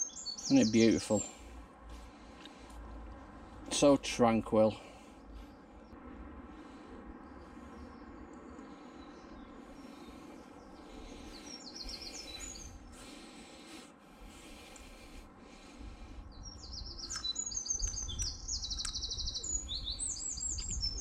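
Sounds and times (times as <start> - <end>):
songbirds chirping and trilling: 0.0 - 21.0
low rumble: 4.9 - 13.5.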